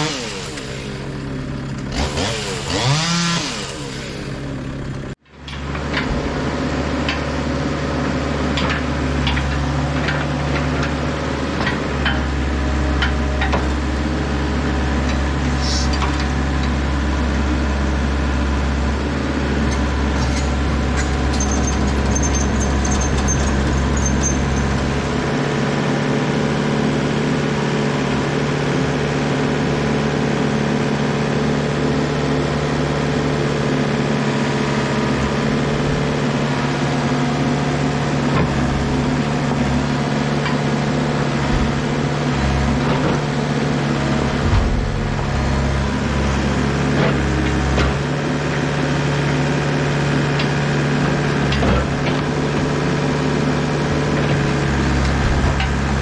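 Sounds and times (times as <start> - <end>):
diesel engine running: 0.0 - 56.0
hydraulics whining: 8.5 - 25.4, 35.1 - 56.0.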